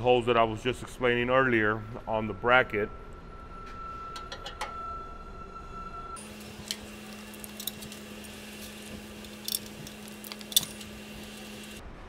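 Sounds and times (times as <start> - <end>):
steady shop hum: 3.0 - 11.8
metallic clicks of bolts: 6.2 - 11.8.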